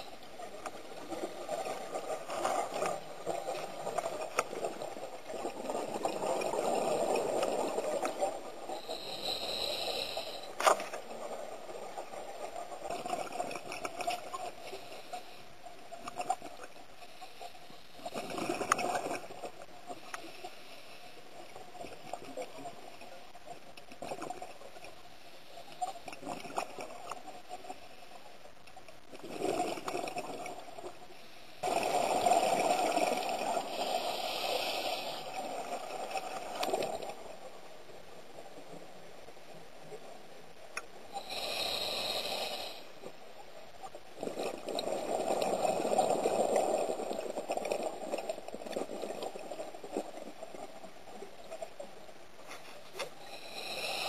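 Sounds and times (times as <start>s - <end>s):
underwater bubbles gurgling: 0.0s - 16.8s, 17.9s - 20.4s, 31.6s - 37.6s, 43.8s - 52.0s.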